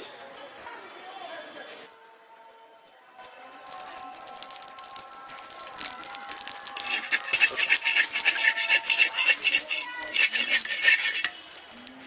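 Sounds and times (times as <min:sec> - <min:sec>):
metal spatula scraping clay pan: 0:06.7 - 0:11.8.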